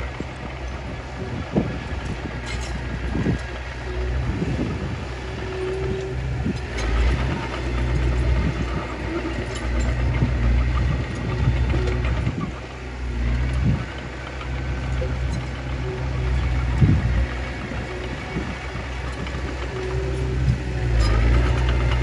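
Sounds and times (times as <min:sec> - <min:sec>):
bulldozer diesel engine under load: 0:00.0 - 0:22.0.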